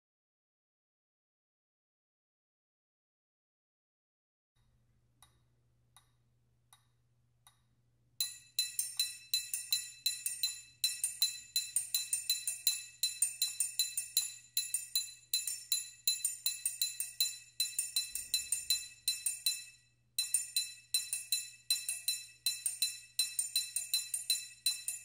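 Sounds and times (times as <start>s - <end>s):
metronome clicks: 8.2s - 25.0s
triangle strokes ringing: 8.2s - 25.0s.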